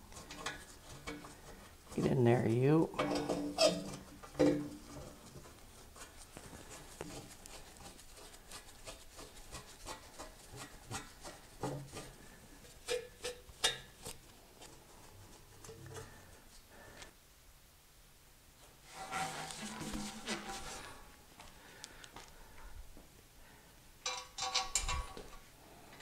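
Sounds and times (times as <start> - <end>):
metal headers knocking and scraping: 0.0 - 2.2, 2.9 - 8.0, 8.8 - 14.1, 18.9 - 21.1, 24.0 - 25.4.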